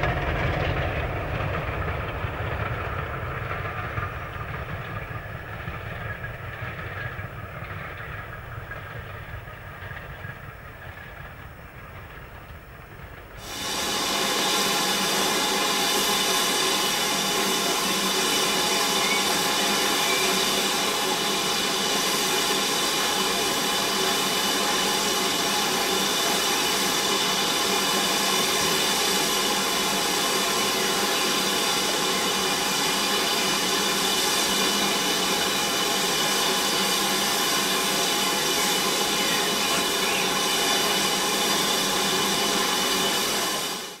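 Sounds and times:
steam locomotive hissing steam: 0.0s - 44.0s
faint whistling tones: 16.0s - 25.0s, 30.5s - 43.4s.

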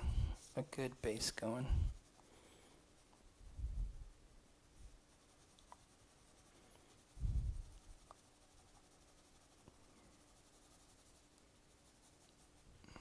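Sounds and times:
pencil scratching on paper: 4.9s - 13.0s.

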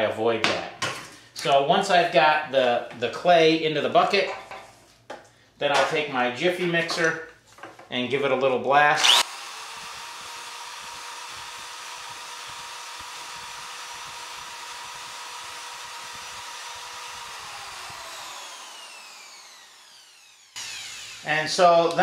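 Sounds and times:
electric drill mixing clay: 9.0s - 22.0s.

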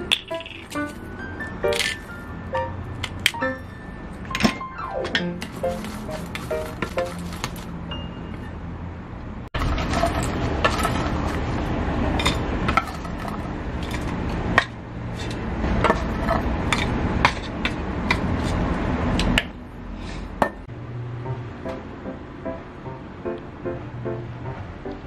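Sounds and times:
fries scraping and rustling: 5.4s - 7.7s.

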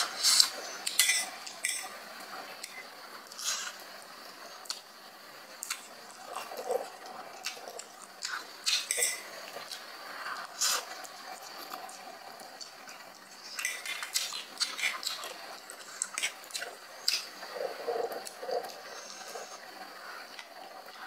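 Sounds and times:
fork clinking on ceramic plate: 0.9s - 1.9s
person slurping and chewing: 2.6s - 3.8s, 5.6s - 21.0s.

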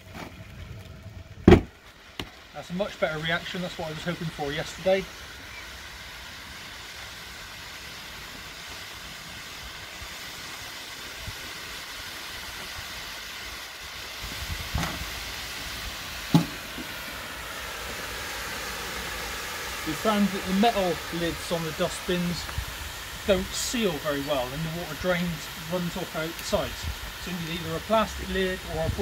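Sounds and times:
steam hissing: 0.0s - 29.0s
sharp knock: 1.5s - 1.7s, 16.3s - 16.6s.

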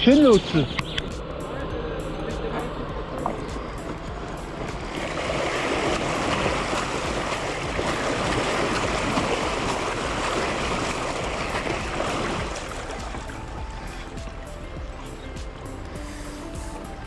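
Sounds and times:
bike wheels splashing through water: 4.5s - 16.8s.

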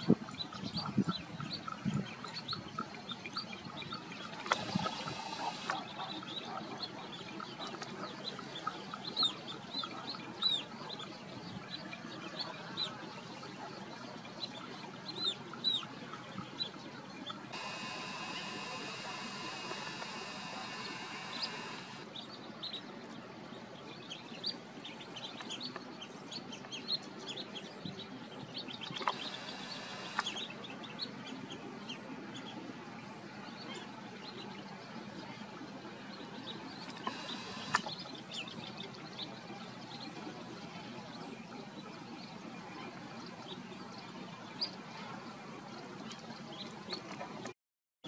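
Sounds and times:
birds chirping: 0.0s - 22.8s, 24.0s - 47.5s
outdoor hiss: 4.4s - 5.8s, 17.5s - 22.0s, 29.0s - 30.4s, 37.0s - 38.0s
sharp clicks: 4.4s - 5.8s, 17.6s - 22.0s, 28.8s - 30.4s, 36.9s - 38.0s.

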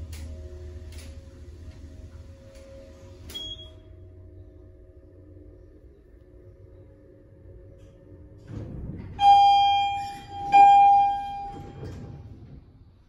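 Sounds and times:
elevator doors sliding open: 0.0s - 3.9s, 8.2s - 13.0s
elevator pump motor humming: 7.5s - 12.4s
elevator arrival chime: 9.2s - 12.2s.

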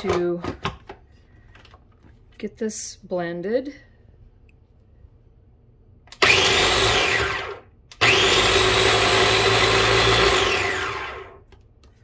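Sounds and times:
food processor motor whirring: 6.1s - 11.5s.

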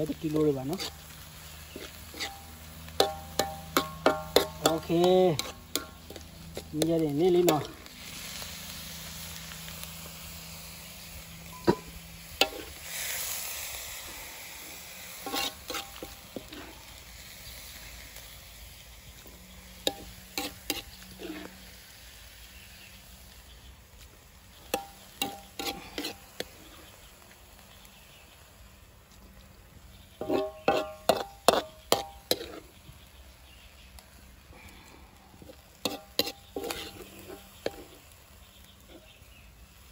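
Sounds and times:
faint meat sizzle: 0.0s - 39.9s
metal spoon scraping a wok: 0.3s - 9.3s, 11.0s - 18.6s, 19.2s - 22.2s, 24.6s - 27.0s, 30.1s - 32.8s, 35.4s - 39.3s.

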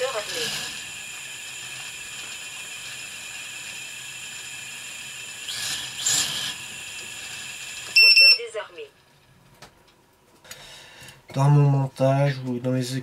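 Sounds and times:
drone motors high whine: 0.0s - 8.4s.

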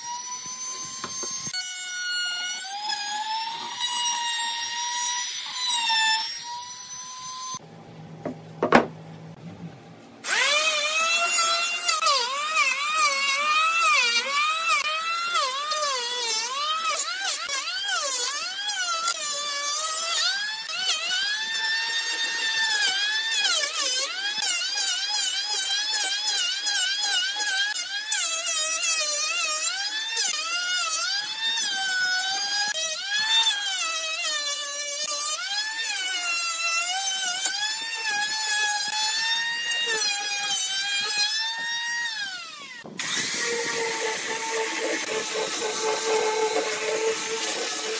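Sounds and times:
electric planer cutting wood: 0.0s - 7.6s, 10.2s - 47.9s
router whining: 0.0s - 7.6s, 10.2s - 47.9s
low hum: 7.6s - 10.2s.

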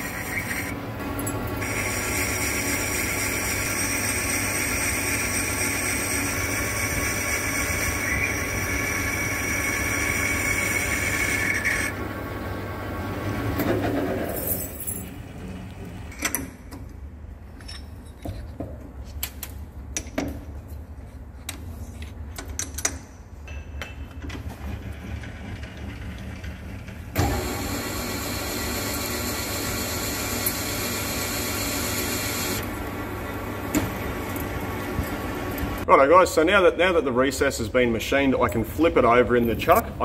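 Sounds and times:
lathe boring cut: 0.0s - 0.8s, 1.6s - 12.0s, 27.2s - 32.6s
lathe cutting noise: 0.0s - 13.4s, 27.2s - 33.5s.

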